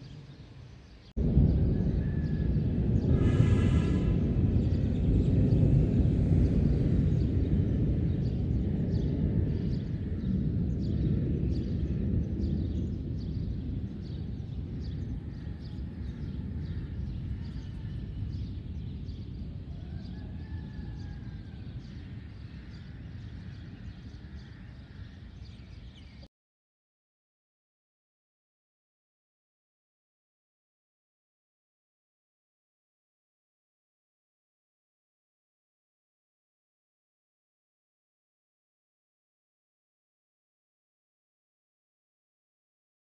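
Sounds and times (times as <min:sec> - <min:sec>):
rolling thunder: 0:01.2 - 0:25.8.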